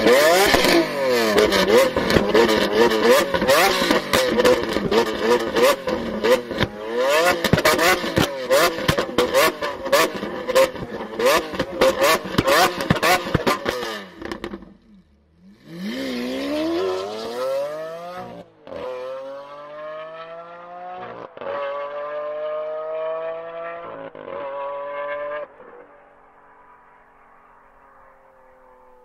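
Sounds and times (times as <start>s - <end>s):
car accelerating through gears: 0.0s - 14.7s, 15.4s - 26.0s
exhaust pops and crackles: 0.0s - 14.8s
car engine revving: 0.0s - 29.0s.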